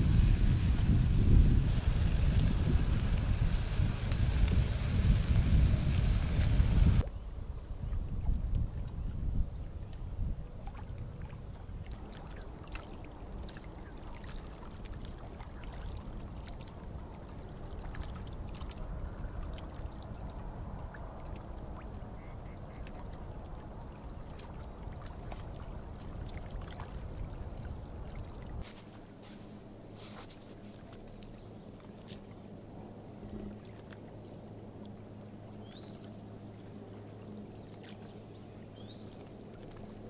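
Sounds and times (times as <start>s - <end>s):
waves lapping against rocks: 0.0s - 7.0s
wind on microphone: 0.0s - 12.5s, 15.5s - 28.6s
faint clicks and splashes: 9.8s - 32.5s, 33.3s - 35.1s, 37.6s - 38.2s, 39.0s - 40.0s.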